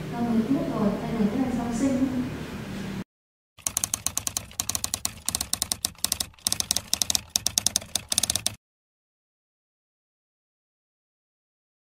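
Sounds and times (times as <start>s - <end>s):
rapid keyboard clicks: 3.6s - 8.6s.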